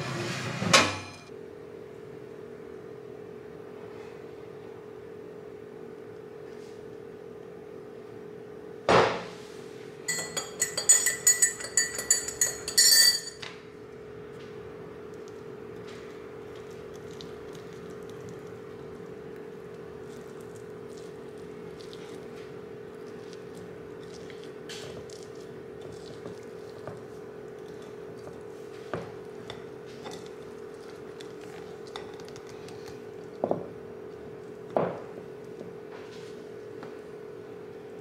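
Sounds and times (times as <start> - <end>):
glass bowl knocking and ringing: 10.1 - 13.4
spatula scraping glass bowl: 10.1 - 13.4.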